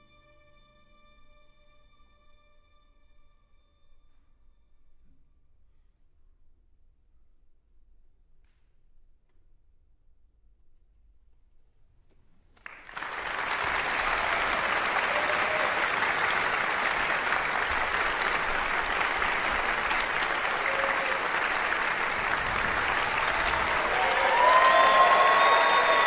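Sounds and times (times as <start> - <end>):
audience applause: 12.6 - 26.0.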